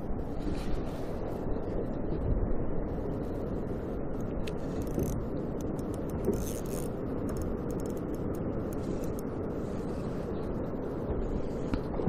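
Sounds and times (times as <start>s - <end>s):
wind on the microphone: 0.0s - 12.0s.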